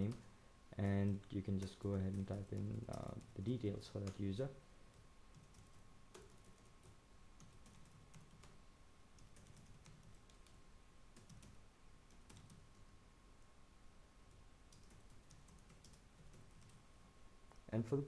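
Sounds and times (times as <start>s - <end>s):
keyboard typing: 1.0s - 4.2s, 4.9s - 10.6s, 11.2s - 12.9s, 14.3s - 16.8s.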